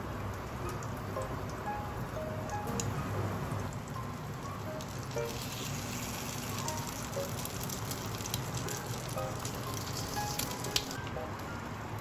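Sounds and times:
soft background music: 0.0 - 12.0
oil sizzling in a frying pan: 3.4 - 11.1.

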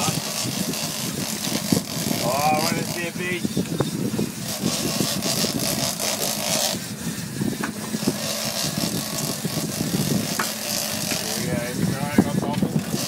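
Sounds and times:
boat motor running: 0.0 - 13.0
wind and sea noise: 0.0 - 13.0.

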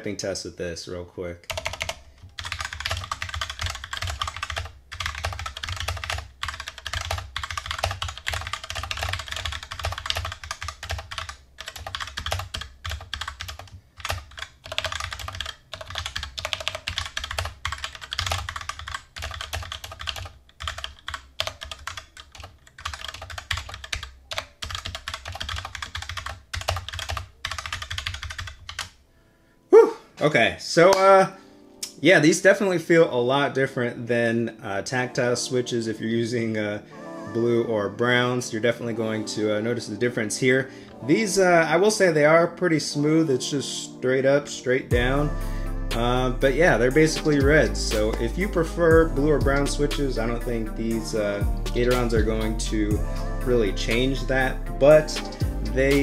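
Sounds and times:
fast mechanical keyboard typing: 1.5 - 28.9, 51.1 - 52.5.

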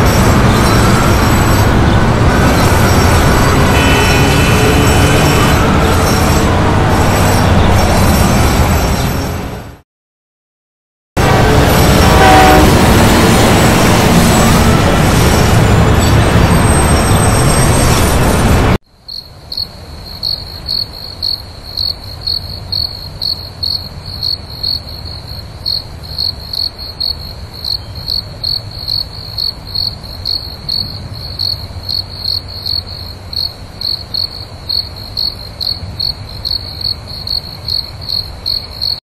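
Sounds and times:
cricket chirping: 19.0 - 39.0.

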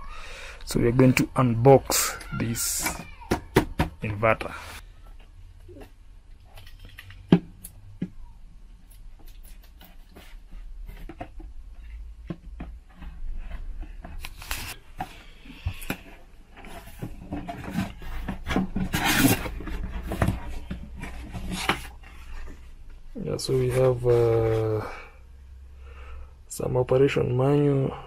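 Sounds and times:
knife scraping cardboard box: 18.8 - 20.2.

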